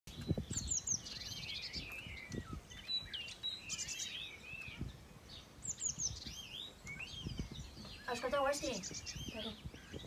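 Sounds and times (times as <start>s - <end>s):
songbirds singing: 0.1s - 10.0s
dull low thumps: 6.0s - 8.1s.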